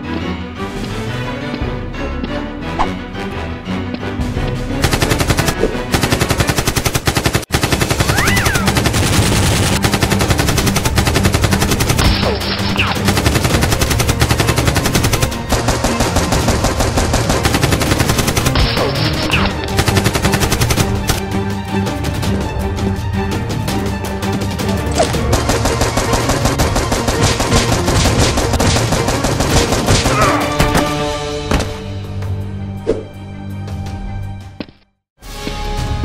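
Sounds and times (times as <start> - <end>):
action background music: 0.0 - 36.0
automatic gunfire bursts: 4.8 - 12.2, 13.0 - 18.8, 25.2 - 30.0.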